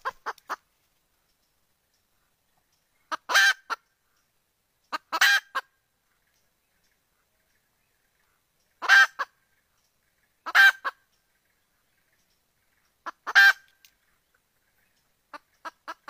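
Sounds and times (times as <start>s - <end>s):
hen calling: 3.0s - 3.9s, 4.9s - 5.7s, 8.3s - 9.5s, 10.4s - 11.1s, 12.8s - 16.0s.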